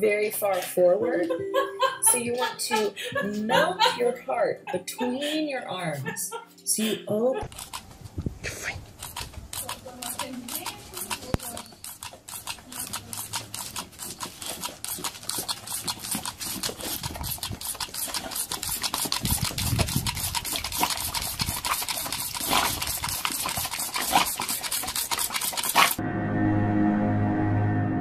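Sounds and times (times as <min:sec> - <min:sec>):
music: 0:00.0 - 0:07.4, 0:26.0 - 0:28.0
water pistol clicking: 0:09.0 - 0:26.0.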